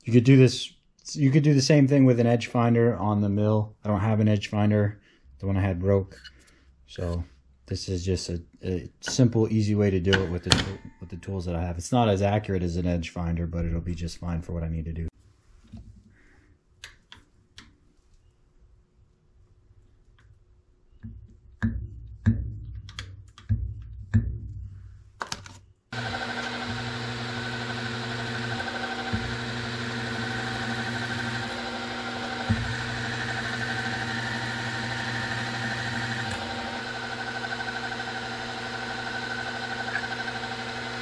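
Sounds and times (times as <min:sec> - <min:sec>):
milling machine motor whining: 0:26.0 - 0:41.0.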